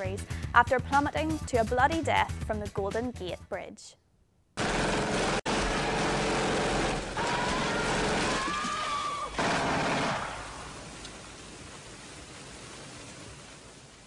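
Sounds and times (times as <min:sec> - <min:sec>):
rushing water and debris: 0:05.5 - 0:14.0.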